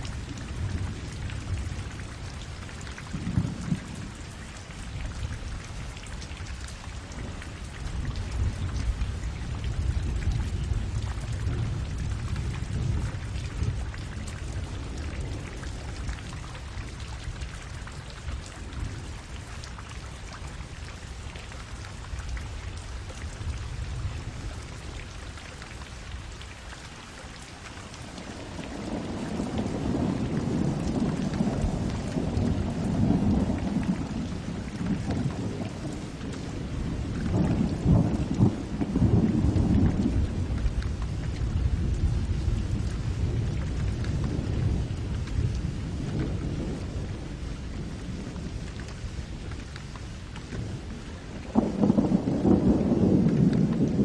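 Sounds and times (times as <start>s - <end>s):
rain falling on puddles: 0.0s - 54.0s
thunder rolling: 51.5s - 54.0s.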